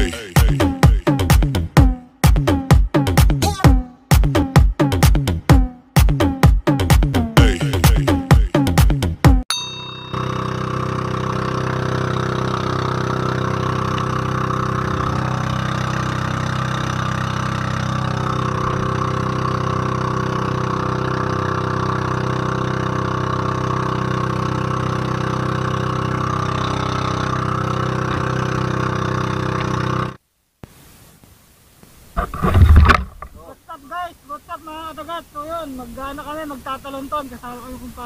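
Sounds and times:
boat engine running: 9.7s - 30.2s.

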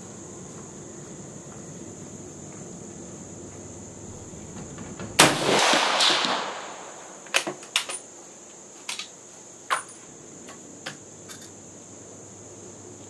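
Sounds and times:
crickets chirping: 0.0s - 13.0s
rifle shot: 5.1s - 7.6s.

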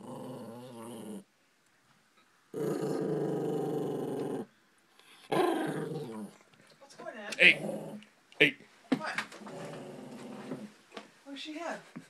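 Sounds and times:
small dog growling: 0.0s - 1.3s, 2.5s - 6.4s, 7.4s - 8.1s, 9.4s - 10.8s.

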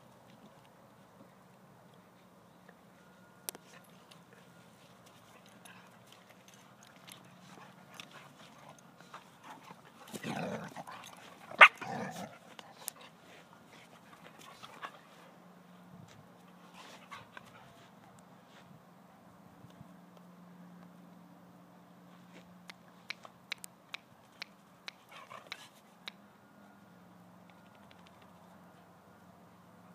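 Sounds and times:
paws and collars ticking: 3.5s - 15.0s, 22.6s - 26.2s
dog growling: 10.1s - 10.9s.

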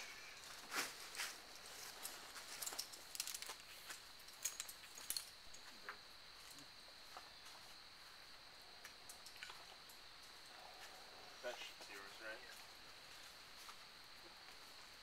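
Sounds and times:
carabiners clicking: 2.5s - 5.6s.

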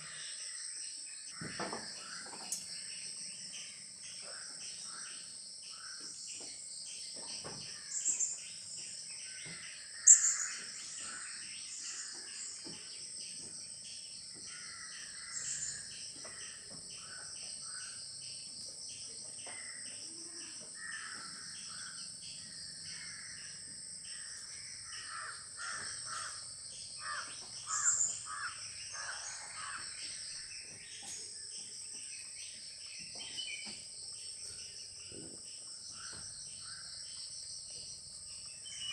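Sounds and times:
insects droning: 0.0s - 38.9s
birds calling: 7.2s - 13.4s, 24.1s - 37.3s.

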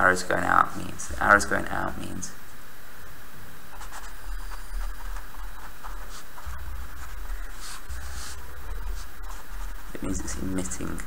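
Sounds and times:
steady low hum: 0.0s - 11.0s
pen scratching on paper: 3.7s - 10.8s.

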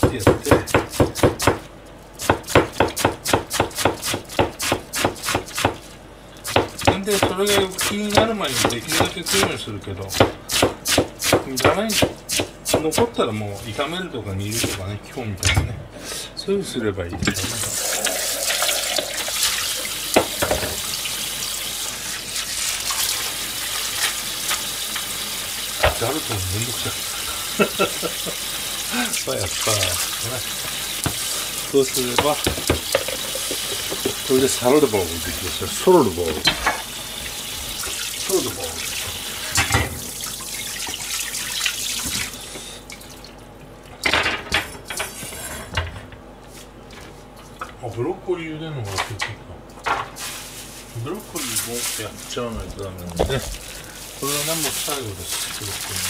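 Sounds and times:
tap running into sink: 20.1s - 21.0s, 25.8s - 26.4s, 30.6s - 31.3s, 32.1s - 34.3s, 42.0s - 42.3s.

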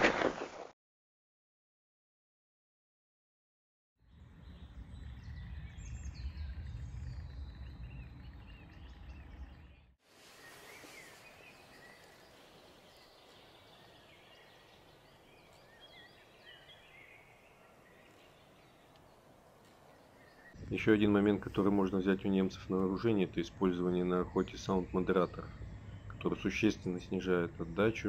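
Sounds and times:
low rumble on microphone: 4.0s - 10.0s, 20.3s - 28.0s
songbirds chirping and trilling: 4.0s - 28.0s
outdoor background hiss: 4.5s - 28.0s.

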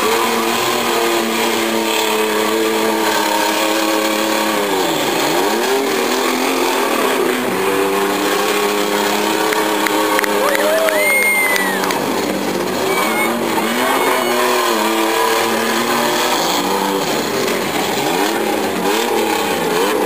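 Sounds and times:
car engines revving hard: 0.0s - 20.0s.

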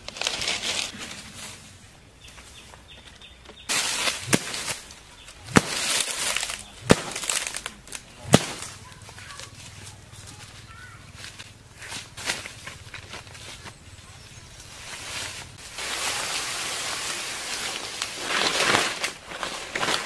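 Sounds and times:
grass rustling: 0.0s - 20.0s
wooden stick whacking: 3.7s - 8.8s.

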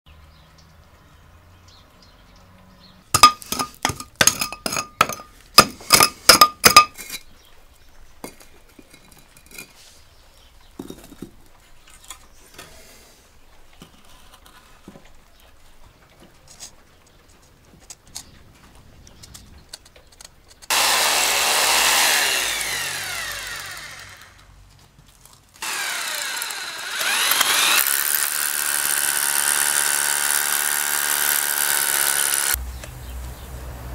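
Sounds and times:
hammer drill drilling into stone: 3.2s - 5.3s, 20.7s - 24.5s, 25.6s - 32.6s.

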